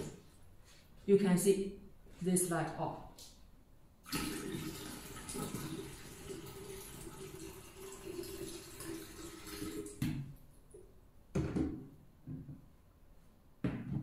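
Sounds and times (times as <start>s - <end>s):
water poured from jug: 4.0s - 10.0s.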